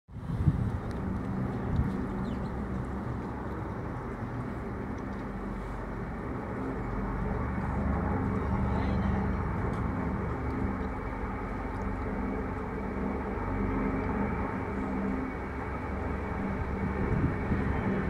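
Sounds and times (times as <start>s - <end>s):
aircraft drone overhead: 0.1s - 18.0s.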